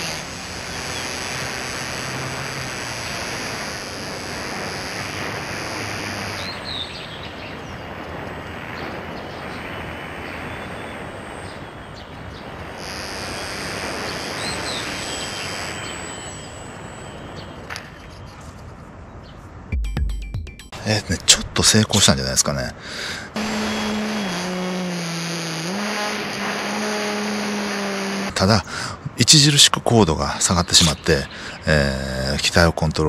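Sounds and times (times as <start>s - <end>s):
electric motor and propeller whine: 0.0s - 18.4s, 23.3s - 28.4s.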